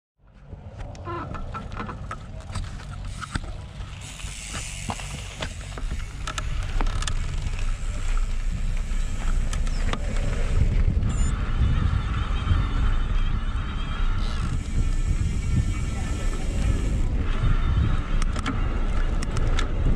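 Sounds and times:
wind rumble on microphone: 0.2s - 19.9s
tyres rolling on gravel: 0.4s - 12.0s
bike rattling over stones: 1.0s - 11.5s, 14.1s - 19.9s.

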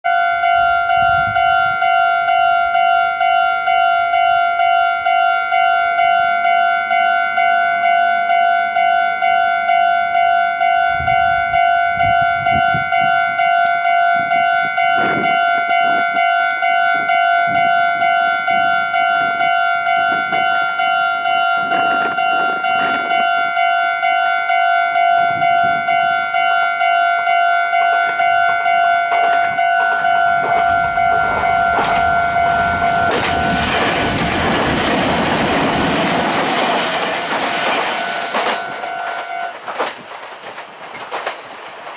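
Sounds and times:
level crossing warning bell: 0.0s - 39.7s.

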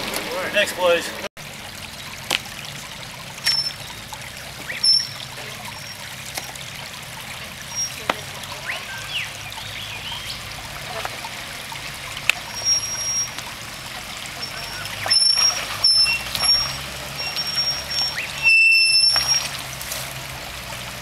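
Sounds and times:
engine hum: 0.0s - 21.0s
trickling water: 0.0s - 21.0s.

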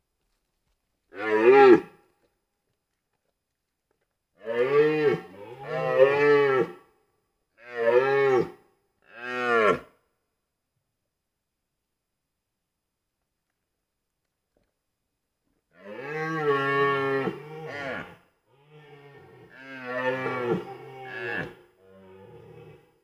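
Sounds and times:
deer stag roaring: 15.8s - 23.0s.

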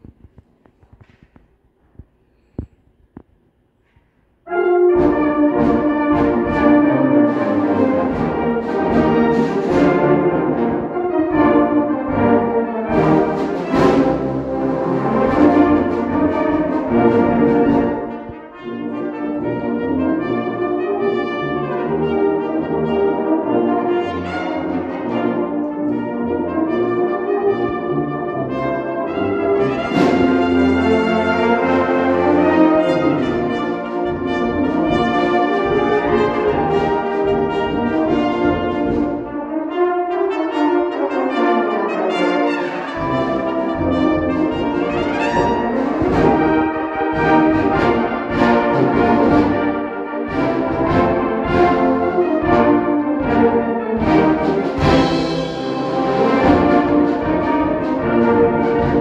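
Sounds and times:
brass band playing: 4.4s - 59.0s
cornet solo: 4.5s - 59.0s.

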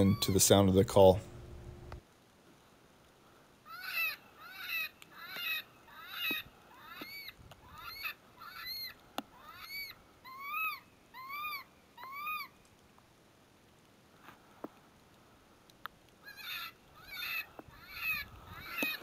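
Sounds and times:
electronic animal distress cries: 3.7s - 12.5s, 16.2s - 19.0s.

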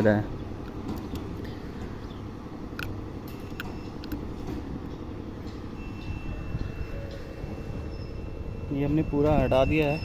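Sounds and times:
sharp plastic clicks: 2.7s - 4.2s.

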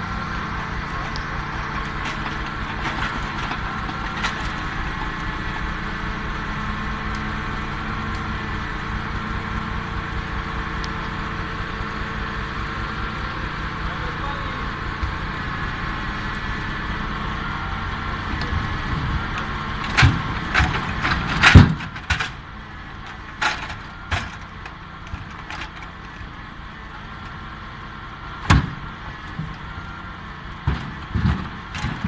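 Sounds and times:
tractor engine droning: 0.0s - 32.0s
logs knocking into trailer: 0.7s - 5.5s, 18.2s - 27.4s, 28.4s - 32.0s.

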